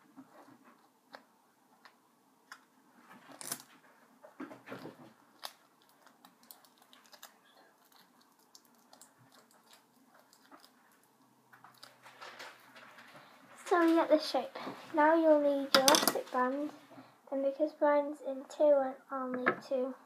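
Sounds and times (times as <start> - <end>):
sharp crinkle: 11.5 - 13.2.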